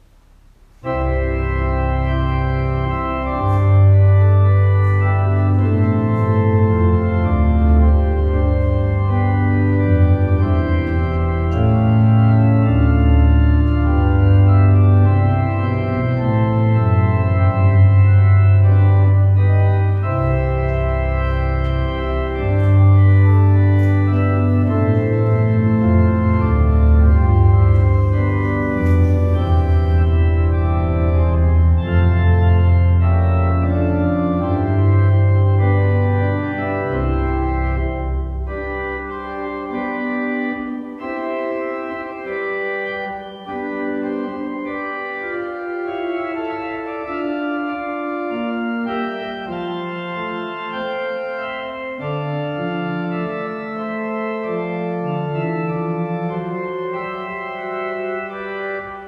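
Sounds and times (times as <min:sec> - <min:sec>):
church organ chords: 0:00.0 - 0:59.0.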